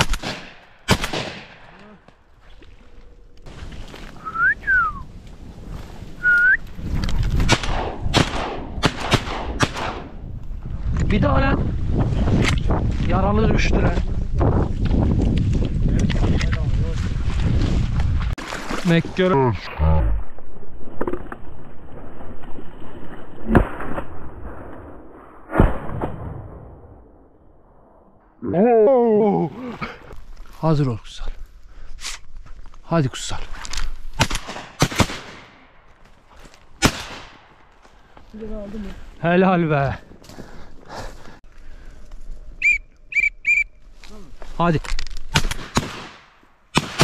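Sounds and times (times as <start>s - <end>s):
shotgun shots: 0.0s - 1.7s, 7.4s - 10.2s, 34.2s - 35.7s, 36.8s - 37.5s, 45.3s - 47.0s
low rumble of wind: 0.0s - 18.4s
loud whistles: 4.2s - 5.1s, 6.2s - 6.6s, 42.6s - 43.8s.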